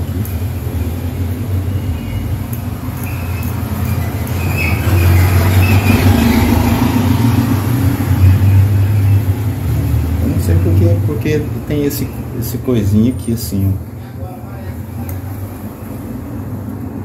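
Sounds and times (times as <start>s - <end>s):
low mechanical rumble: 0.0s - 17.0s.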